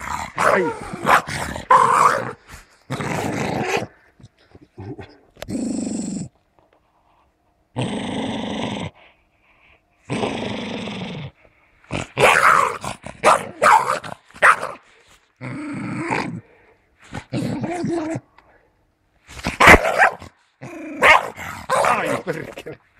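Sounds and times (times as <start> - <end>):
dog snarling and barking: 0.0 - 4.0, 10.1 - 16.4, 19.3 - 22.6
dog growling: 0.0 - 6.4, 7.7 - 9.1, 10.0 - 18.4, 20.6 - 22.8.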